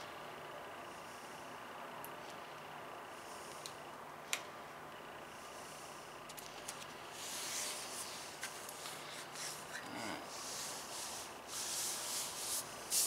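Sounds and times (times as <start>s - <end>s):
hand rubbing paper swishing: 7.1s - 13.0s.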